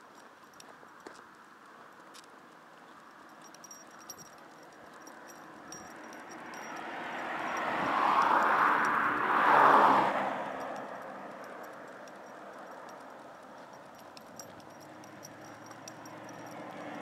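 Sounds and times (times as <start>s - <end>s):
vehicle passing by: 5.1s - 17.0s.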